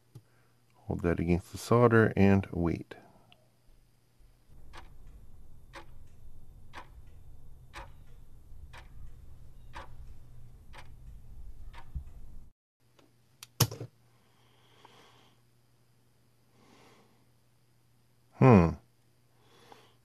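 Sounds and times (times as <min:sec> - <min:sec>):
clock ticking: 0:04.5 - 0:12.5
low rumble: 0:04.5 - 0:12.5.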